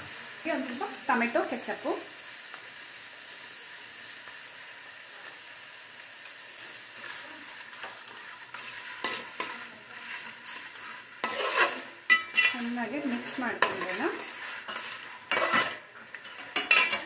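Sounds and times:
vegetables sizzling in a pot: 0:00.0 - 0:17.0
metal spoon scraping a pot: 0:07.8 - 0:17.0.

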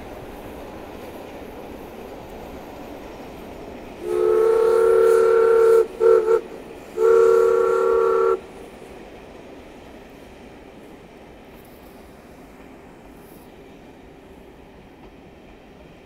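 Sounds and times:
train running noise: 0:00.0 - 0:16.0
steam locomotive whistle: 0:04.0 - 0:08.5.

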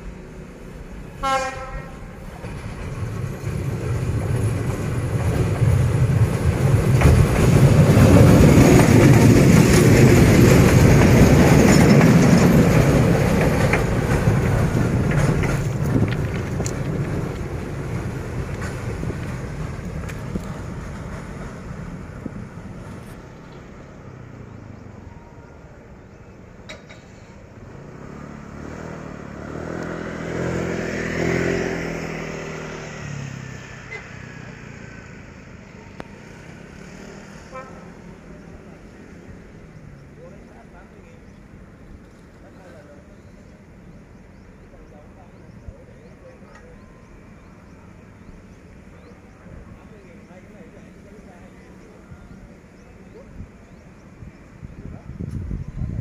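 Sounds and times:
diesel locomotive engine running: 0:00.0 - 0:27.9
road vehicle engine: 0:00.0 - 0:56.0
train wheels rolling on track: 0:00.0 - 0:56.0.

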